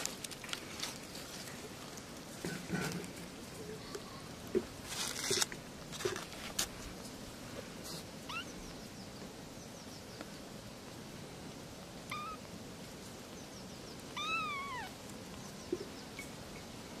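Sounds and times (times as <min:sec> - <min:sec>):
kittens meowing: 0:08.3 - 0:08.8, 0:12.1 - 0:12.5, 0:14.1 - 0:15.0.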